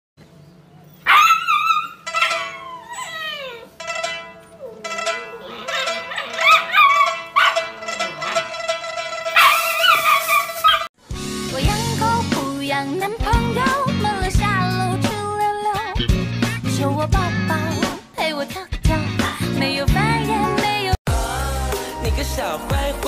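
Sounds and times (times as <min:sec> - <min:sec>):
puppy howling and yowling: 0:01.0 - 0:07.6, 0:09.4 - 0:10.9.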